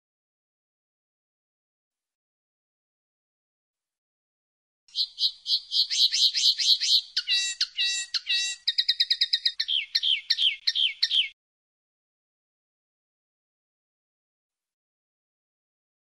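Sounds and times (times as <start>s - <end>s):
linnet twittering song: 4.9s - 11.4s.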